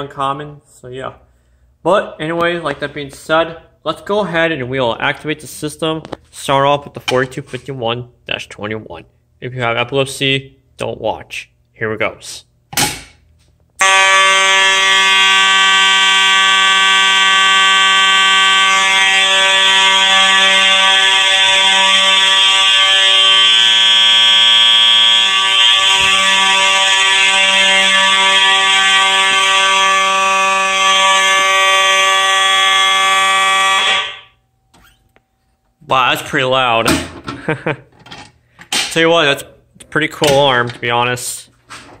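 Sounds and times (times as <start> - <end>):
fire alarm horn tone: 13.8 - 34.6.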